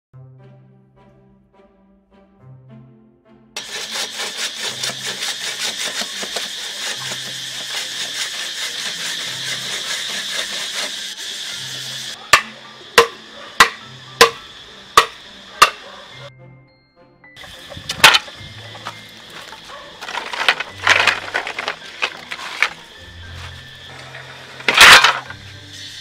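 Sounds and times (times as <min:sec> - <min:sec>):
saw rasping through bamboo: 0:03.6 - 0:16.1, 0:17.4 - 0:25.5
sharp ringing knocks on bamboo: 0:12.3 - 0:14.4, 0:15.0 - 0:15.8.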